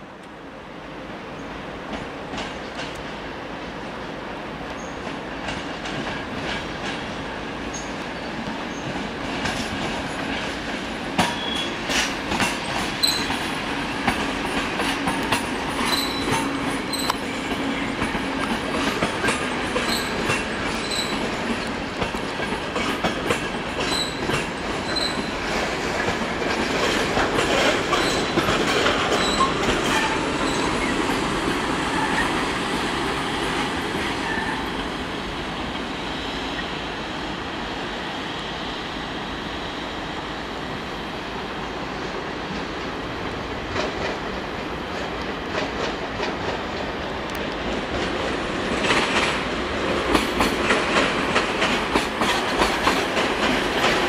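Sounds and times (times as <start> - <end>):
passenger train rolling: 0.0 - 54.0
wheels clicking over rail joints: 7.7 - 34.9, 42.0 - 54.0
high-pitched wheel squeals: 13.0 - 13.3, 15.8 - 17.4, 20.8 - 21.2, 24.8 - 25.3, 29.2 - 31.0.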